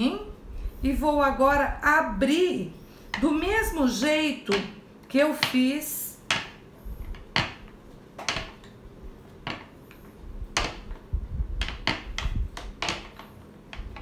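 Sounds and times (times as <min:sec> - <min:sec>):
clicks and knocks on plastic board: 0:06.3 - 0:08.8, 0:09.4 - 0:11.0, 0:11.6 - 0:14.0
rolling pin rumbling on board: 0:10.4 - 0:14.0.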